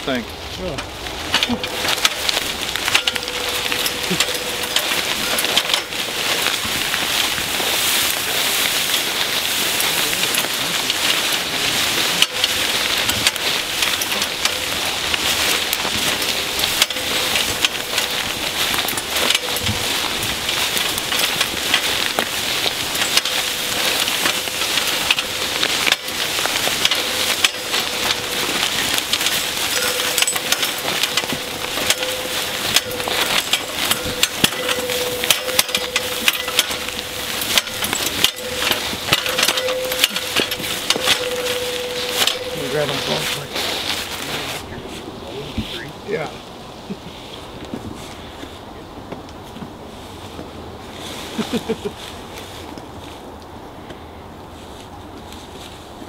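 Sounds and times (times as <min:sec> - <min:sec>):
metal ladder clicking: 0:00.7 - 0:44.7
footsteps through tall grass: 0:01.0 - 0:53.4.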